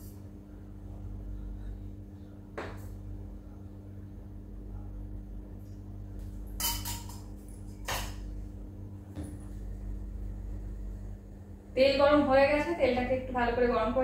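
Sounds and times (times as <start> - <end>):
steady low hum: 0.0 - 14.0
cookware clattering: 6.6 - 7.3.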